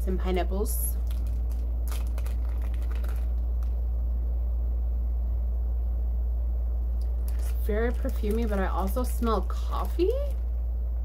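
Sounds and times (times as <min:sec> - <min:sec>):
low background hum: 0:00.0 - 0:11.0
plastic wrapper crinkling: 0:01.0 - 0:03.8, 0:07.0 - 0:10.6.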